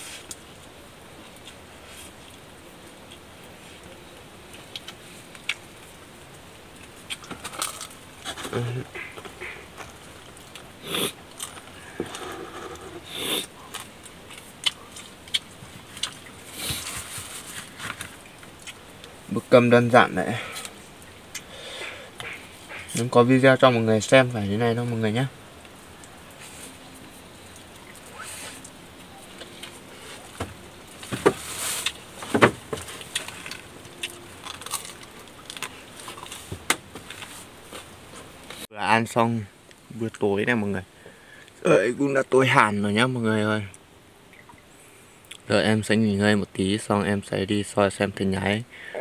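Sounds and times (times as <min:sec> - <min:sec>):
eating noise: 0:06.7 - 0:17.3, 0:20.4 - 0:23.2
chewing: 0:06.7 - 0:19.2, 0:32.8 - 0:36.4
short rustle: 0:31.0 - 0:33.4.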